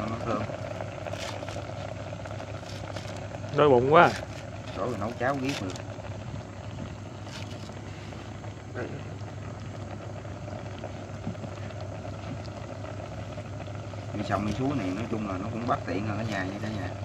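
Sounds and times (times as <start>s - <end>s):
pot simmering: 0.0s - 17.0s
steady low hum: 0.0s - 17.0s.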